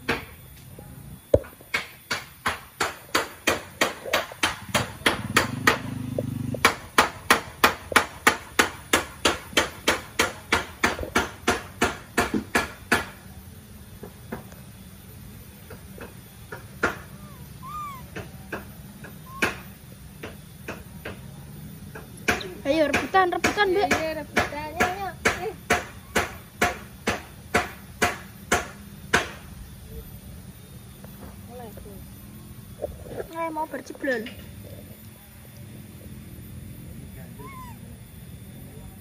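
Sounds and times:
scattered knocks: 0:01.4 - 0:13.2, 0:21.9 - 0:29.4.

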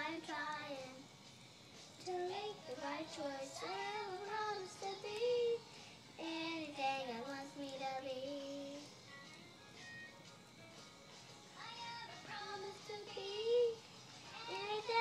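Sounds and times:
girl singing: 0:00.0 - 0:01.0, 0:02.0 - 0:09.0, 0:11.6 - 0:15.0.

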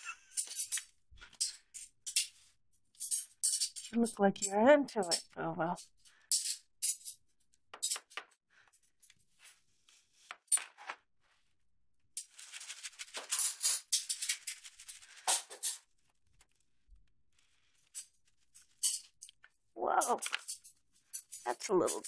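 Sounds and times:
pouch crinkling and rattling: 0:12.2 - 0:15.8.

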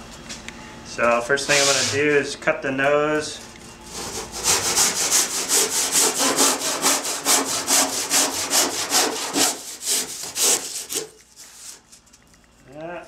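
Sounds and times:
handsaw cutting foam: 0:03.9 - 0:11.8.

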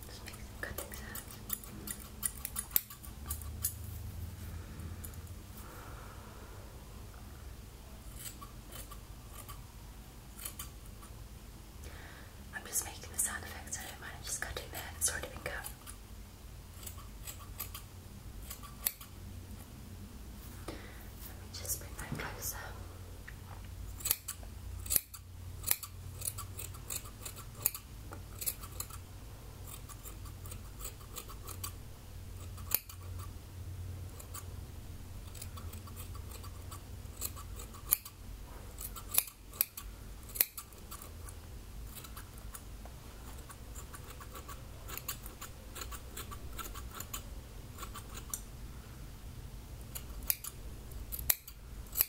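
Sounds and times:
scissors snipping hair: 0:00.8 - 0:03.8, 0:08.1 - 0:09.6, 0:10.4 - 0:10.7, 0:16.8 - 0:19.1, 0:24.0 - 0:29.0, 0:29.6 - 0:31.8, 0:32.5 - 0:33.3, 0:35.3 - 0:38.2, 0:38.8 - 0:41.2, 0:43.3 - 0:47.2, 0:47.8 - 0:48.4, 0:49.9 - 0:52.0.

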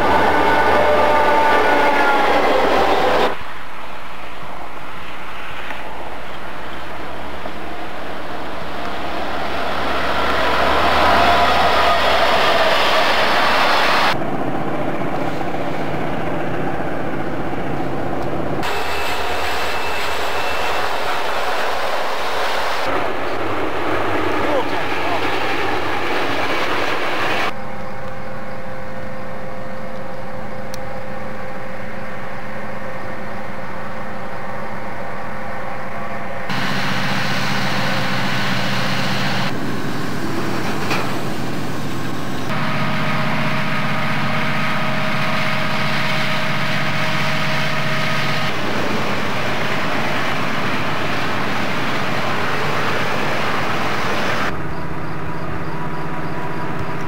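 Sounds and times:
diesel locomotive engine drone: 0:00.0 - 0:57.0.

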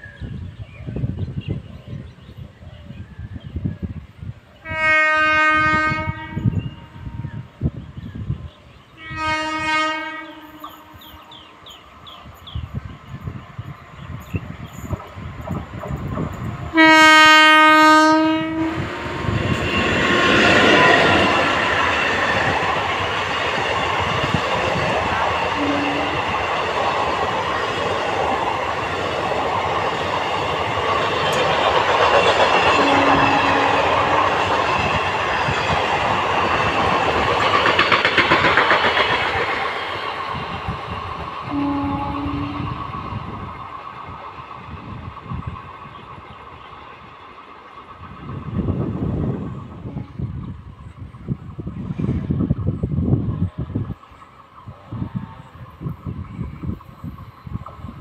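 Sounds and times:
train horn blast: 0:04.6 - 0:07.5, 0:09.0 - 0:11.5, 0:16.7 - 0:19.0, 0:25.6 - 0:26.3, 0:32.7 - 0:34.3, 0:41.5 - 0:42.8, 0:49.8 - 0:50.3
train wheels clattering over rail joints: 0:14.2 - 0:16.7, 0:26.2 - 0:41.4.

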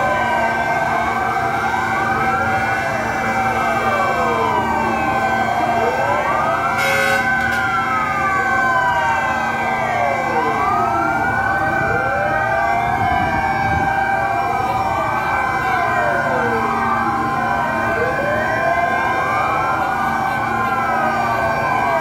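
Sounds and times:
fire truck sirens wailing: 0:00.0 - 0:22.0
horn blast: 0:06.8 - 0:07.6.

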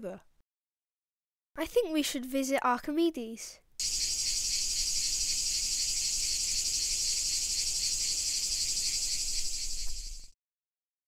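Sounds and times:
cricket chirping: 0:03.8 - 0:10.4.

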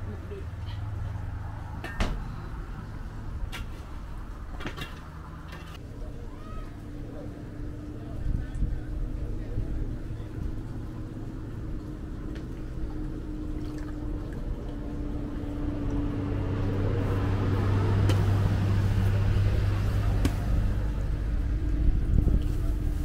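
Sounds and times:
vehicle passing on road: 0:00.0 - 0:05.9, 0:06.8 - 0:23.0
water splashes in bowl: 0:13.3 - 0:14.8.

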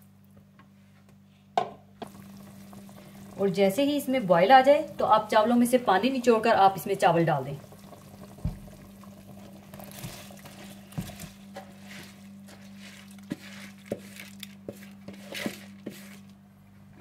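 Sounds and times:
liquid bubbling: 0:02.0 - 0:13.8
rice sliding and splashing: 0:09.7 - 0:16.3.

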